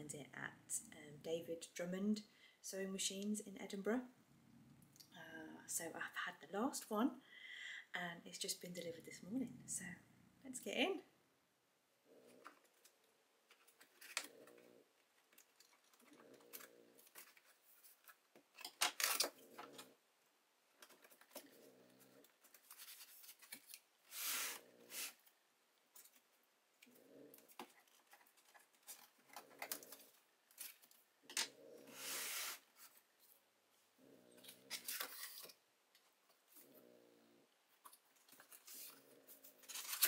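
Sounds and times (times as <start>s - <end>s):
packing tape tearing: 18.6s - 19.8s, 39.6s - 40.0s
small dog snoring: 21.4s - 22.3s.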